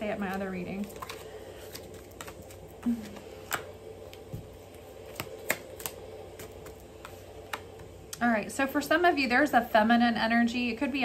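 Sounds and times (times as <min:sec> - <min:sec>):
cards snapping and tapping: 0:00.2 - 0:07.8.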